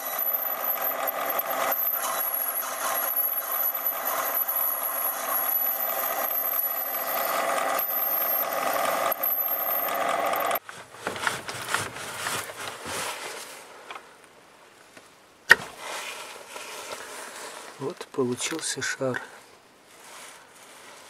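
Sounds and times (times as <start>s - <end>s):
metal lathe humming: 0.0s - 10.6s.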